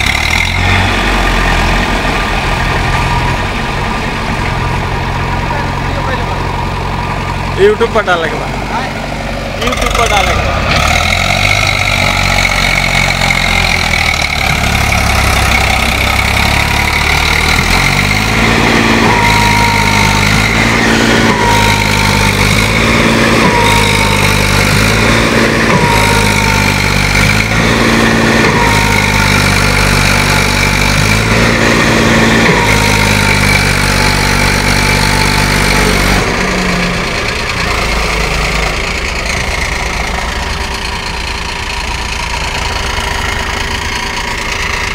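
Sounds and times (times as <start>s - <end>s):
diesel engines running under load: 0.0s - 44.9s.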